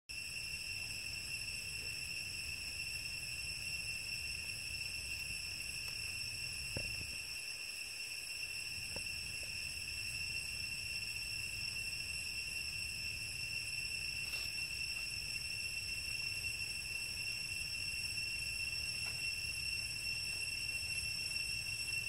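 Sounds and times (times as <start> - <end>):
insect drone: 0.1 - 22.0.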